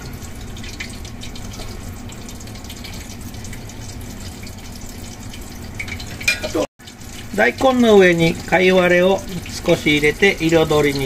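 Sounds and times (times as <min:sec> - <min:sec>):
hot oil sizzling and crackling: 0:00.0 - 0:11.0.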